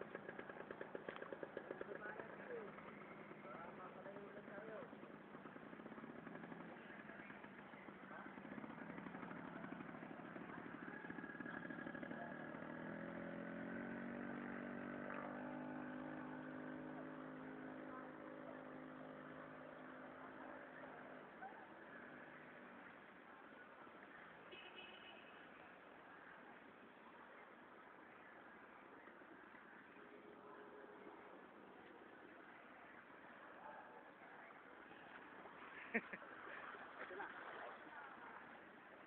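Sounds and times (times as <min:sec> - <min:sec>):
motorcycle engine running: 0:00.0 - 0:25.3.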